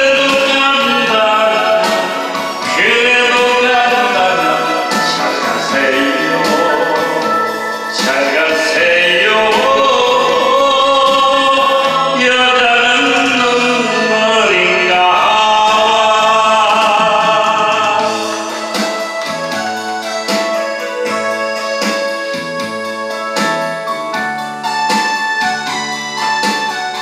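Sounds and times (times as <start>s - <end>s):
man singing into microphone: 0.0s - 21.4s
backing music: 0.0s - 27.0s.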